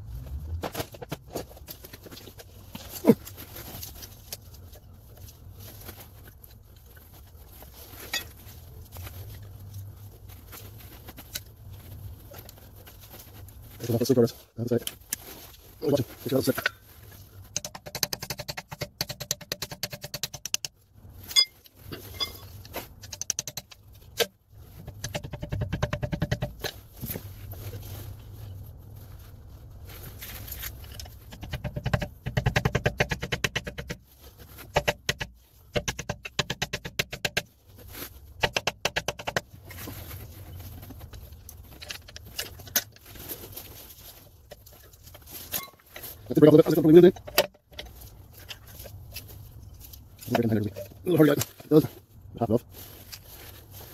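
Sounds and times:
screwdriver scraping metal: 21.3 - 22.5, 45.5 - 45.8.

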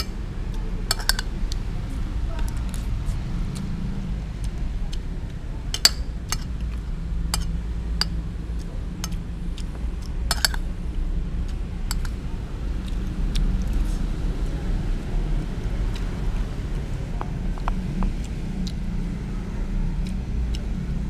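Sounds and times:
steady low hum: 0.0 - 21.0
metal spoon scraping glass plate: 0.9 - 1.3, 7.4 - 8.1, 10.3 - 10.6, 11.9 - 12.1.

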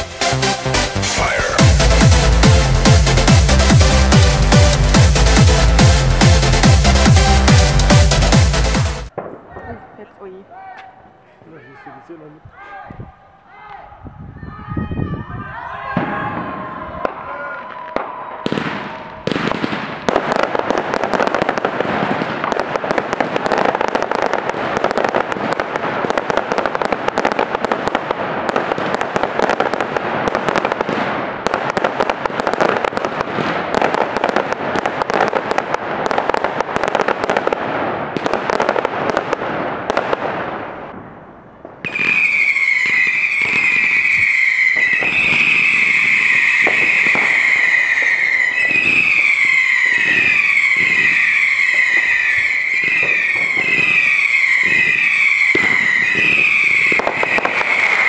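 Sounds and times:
fireworks crackling and popping: 0.0 - 12.4, 15.5 - 58.0
whistling fireworks: 1.1 - 2.1, 14.3 - 58.0.

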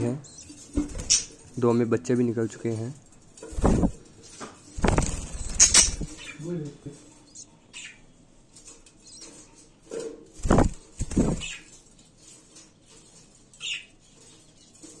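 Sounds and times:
high budgie chirp: 0.0 - 1.4, 3.8 - 6.5, 7.1 - 8.2, 8.9 - 9.5, 10.5 - 11.8, 13.5 - 14.8
wing flapping: 3.4 - 6.3, 10.4 - 11.8.

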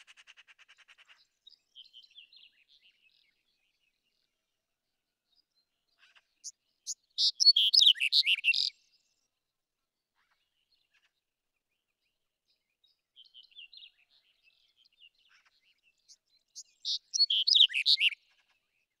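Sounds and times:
loud bird song phrase: 0.8 - 19.0
soft bird twittering: 6.0 - 9.2, 13.2 - 18.2.

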